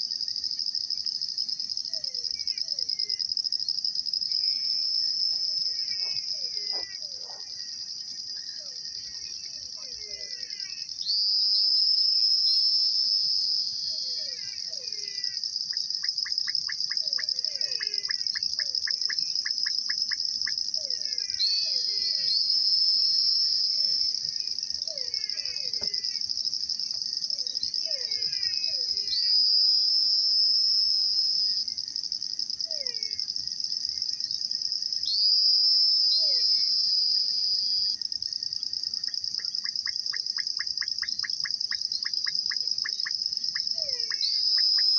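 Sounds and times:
high-pitched insect trill: 0.0 - 44.9.

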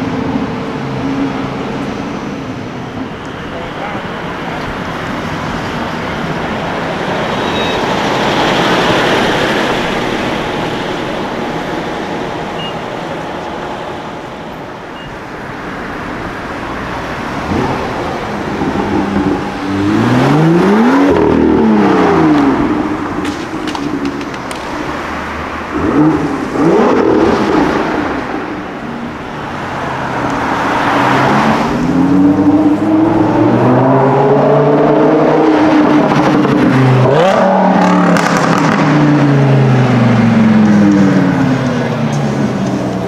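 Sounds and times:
city street traffic: 0.0 - 43.0
car engine revving: 16.4 - 43.0.

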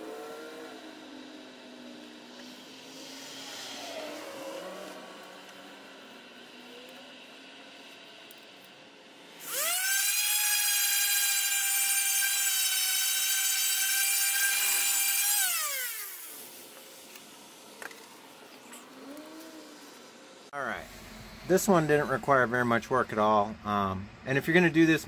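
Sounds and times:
rotary sander whining: 9.0 - 22.6.

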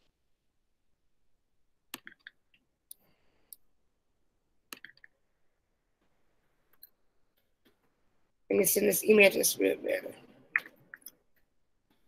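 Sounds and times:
computer mouse clicks: 1.9 - 3.6, 4.7 - 5.2.

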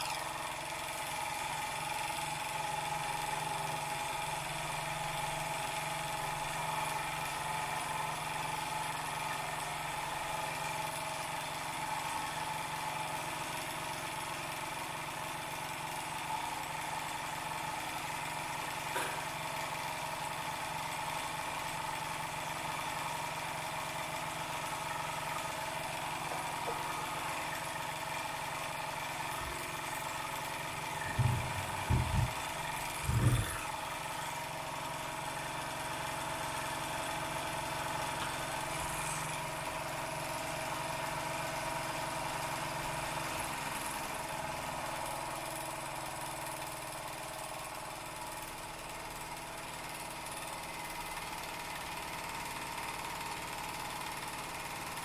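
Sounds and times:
toy steam engine running: 20.8 - 55.0
low thumps: 31.0 - 32.4.

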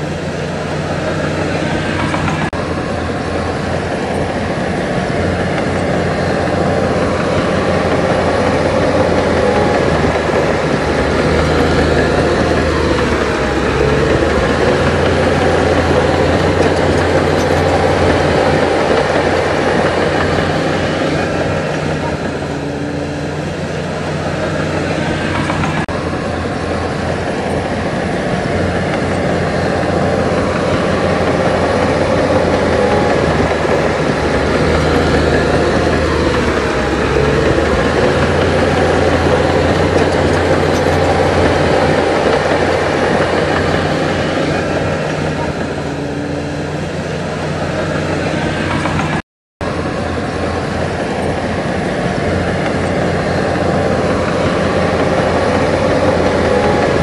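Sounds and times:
heavy diesel machinery running: 0.0 - 57.0.

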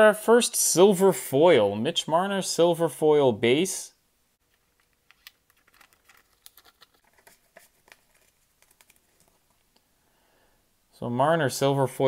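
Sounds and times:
plastic card holder clicking and crinkling: 4.6 - 9.4.

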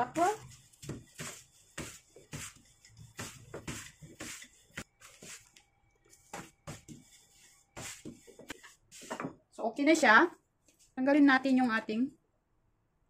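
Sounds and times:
rolling pin rustling plastic sheet: 0.0 - 9.2.

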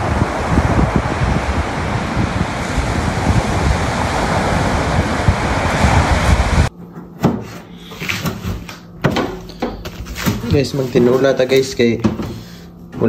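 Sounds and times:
surf on pebble beach: 0.0 - 6.7
wind buffeting microphone: 0.0 - 6.7.

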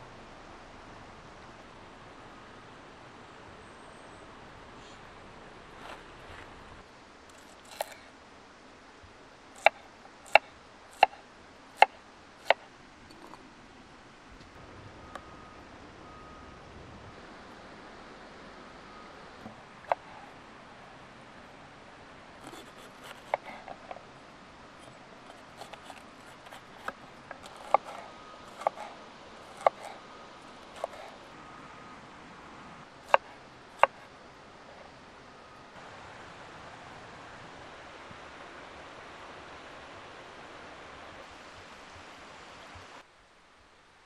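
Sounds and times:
knife chopping on wooden board: 22.4 - 23.9, 25.3 - 30.0, 30.8 - 31.2.

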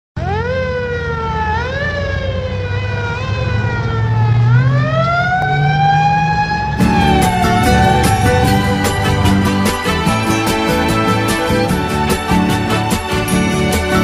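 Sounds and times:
siren wailing: 0.2 - 12.5
steady low rumble: 6.5 - 12.3.

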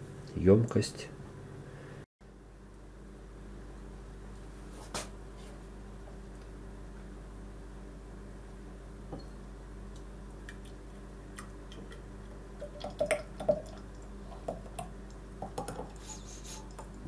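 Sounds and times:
jam dripping and plopping: 10.4 - 15.8.

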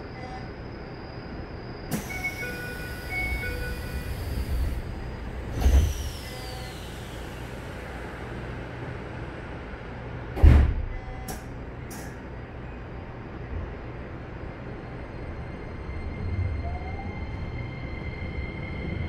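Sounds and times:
sliding doors shutting: 1.9 - 7.6.

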